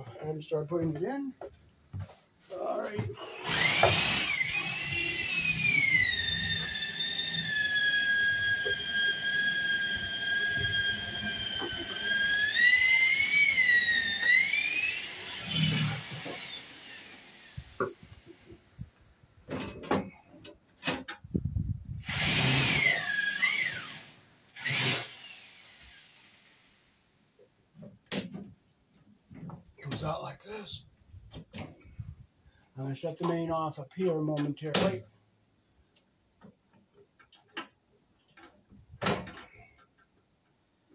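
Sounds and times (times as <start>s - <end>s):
cordless drill whining: 3.2s - 18.6s, 22.0s - 26.6s.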